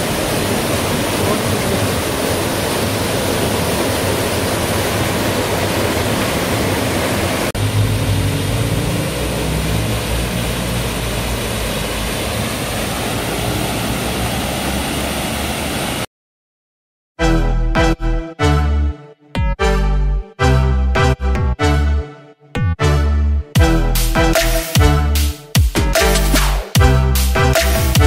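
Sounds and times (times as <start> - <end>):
waterfall splashing into pool: 0.0 - 16.1.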